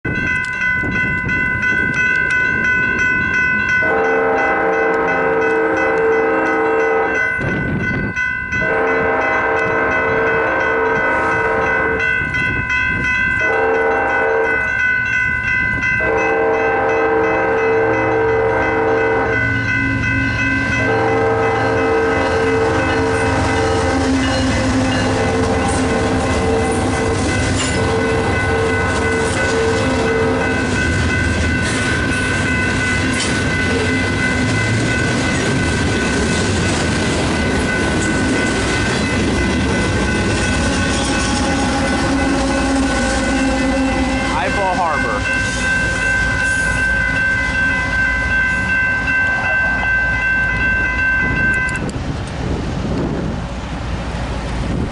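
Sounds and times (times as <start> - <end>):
crossing bell ringing: 0.0 - 51.9
diesel locomotive passing: 0.0 - 54.9
train horn blasts: 3.8 - 7.4, 8.6 - 12.0, 13.4 - 14.6, 16.0 - 31.7, 40.4 - 48.7
freight cars rumbling and clacking: 18.9 - 54.9.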